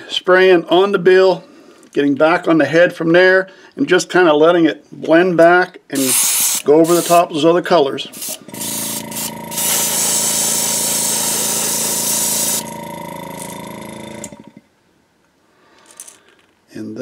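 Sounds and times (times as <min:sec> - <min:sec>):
airbrush spraying hiss: 0:06.0 - 0:07.3, 0:08.1 - 0:12.7
compressor humming: 0:08.1 - 0:14.7.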